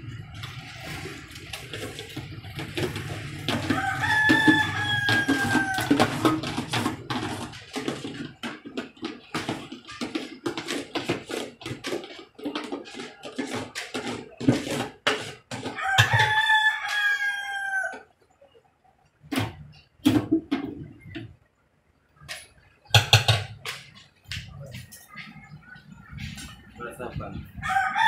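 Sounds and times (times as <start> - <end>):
metal tins knocking on steel pot: 2.2 - 16.3.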